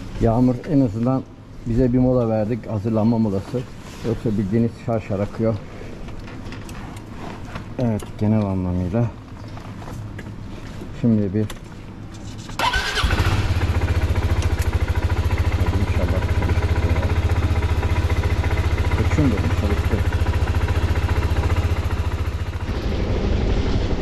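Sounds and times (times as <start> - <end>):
scooter engine starting and idling: 12.6 - 23.5.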